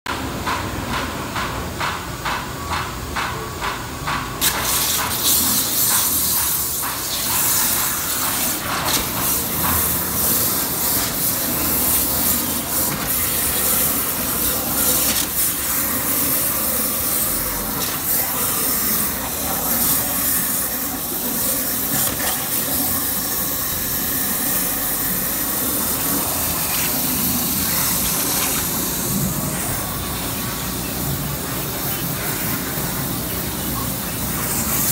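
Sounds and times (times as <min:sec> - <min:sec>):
water jet hissing: 0:04.4 - 0:34.9.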